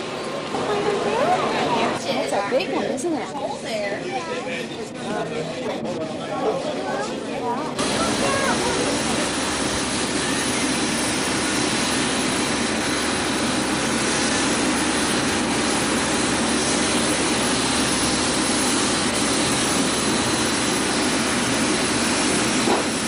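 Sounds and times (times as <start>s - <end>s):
aircraft engines running: 7.6s - 23.0s.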